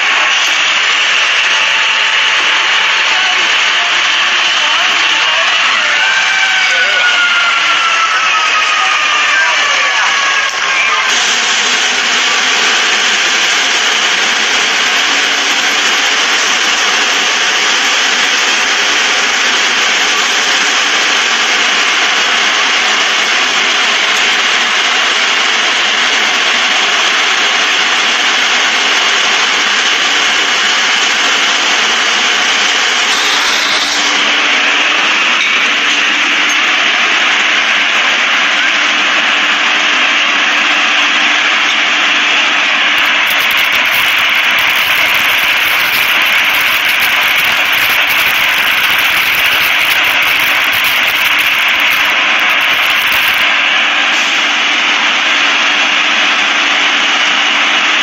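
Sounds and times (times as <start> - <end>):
loud rushing fire noise: 0.0 - 6.3, 11.1 - 35.4, 42.6 - 54.8.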